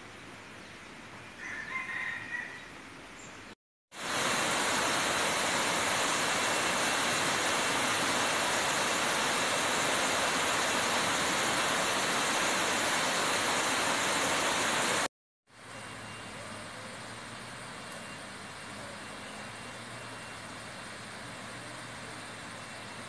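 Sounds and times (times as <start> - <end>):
waterfall rushing over rocks: 4.0 - 15.1.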